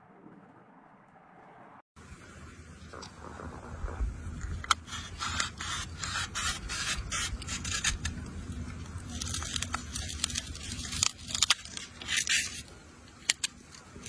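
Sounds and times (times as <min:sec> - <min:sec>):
knife scraping apple skin: 0:04.7 - 0:14.0.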